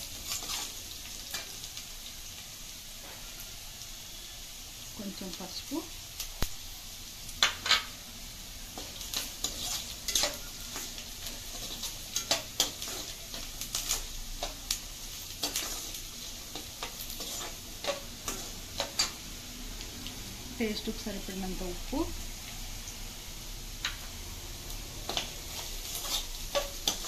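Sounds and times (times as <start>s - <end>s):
vegetables sizzling in oil: 0.0s - 27.0s
metal ladle scraping a pan: 0.2s - 1.5s, 8.8s - 14.7s, 15.4s - 19.2s, 25.1s - 27.0s.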